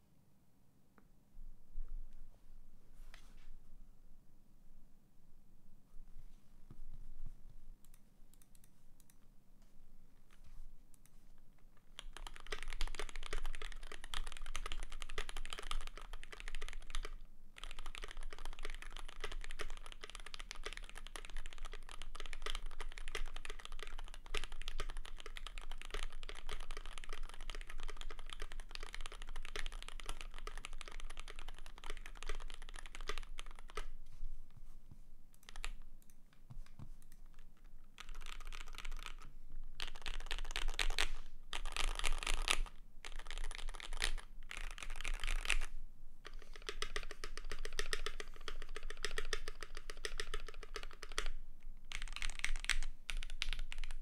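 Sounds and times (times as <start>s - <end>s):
mechanical keyboard typing: 11.9s - 33.9s, 35.4s - 36.2s, 37.0s - 54.0s.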